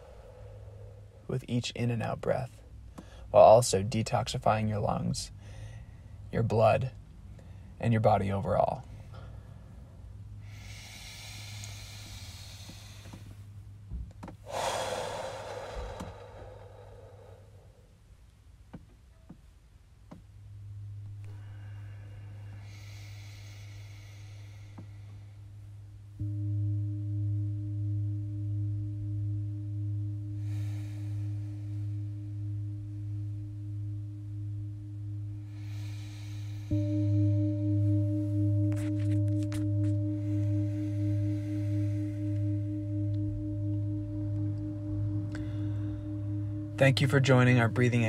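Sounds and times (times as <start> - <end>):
person breathing deeply: 0.0 - 1.3, 2.6 - 3.4, 5.3 - 6.3, 8.8 - 13.7, 14.4 - 18.2, 20.7 - 26.6, 29.8 - 34.2, 35.0 - 47.9
singing bowl ringing: 0.0 - 1.4, 20.5 - 25.3, 26.2 - 48.0
low steady hum: 0.0 - 48.0.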